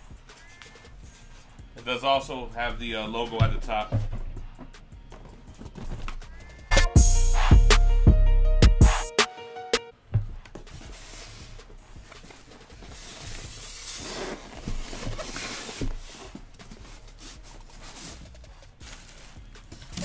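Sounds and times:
foam rubbing against foam: 10.8 - 19.6.

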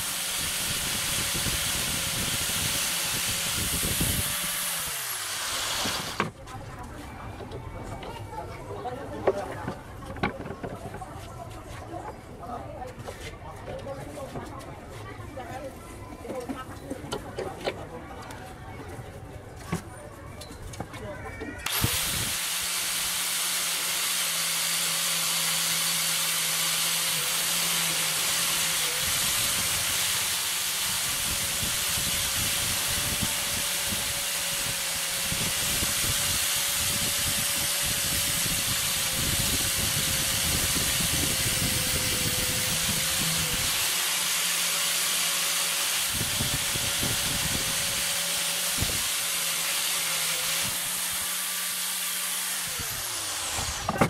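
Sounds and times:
angle grinder wire wheel on metal: 0.0 - 6.4, 21.6 - 54.0.

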